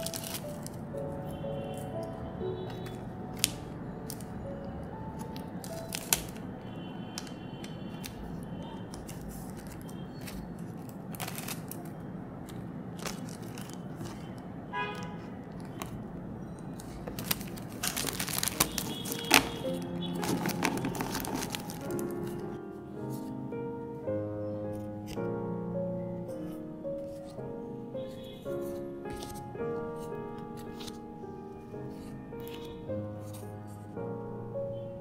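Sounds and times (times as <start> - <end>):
plastic sleeves clicking and rustling: 0.0 - 0.8, 5.2 - 6.5, 8.9 - 14.4, 16.6 - 22.4
plastic crinkling: 0.0 - 4.4, 5.2 - 6.5, 7.1 - 22.6
soft background music: 0.0 - 35.0.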